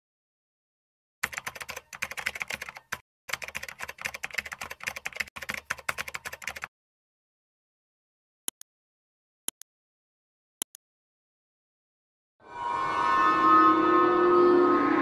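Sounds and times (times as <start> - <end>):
keyboard typing clicks: 1.2 - 6.7.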